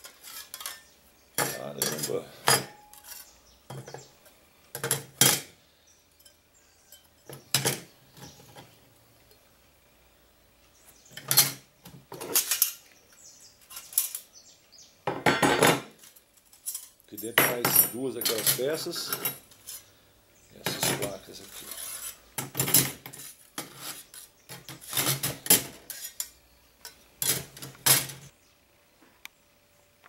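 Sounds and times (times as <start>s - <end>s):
metal plates clinking: 0.0s - 4.1s, 11.2s - 12.8s, 15.1s - 19.9s, 20.6s - 28.3s.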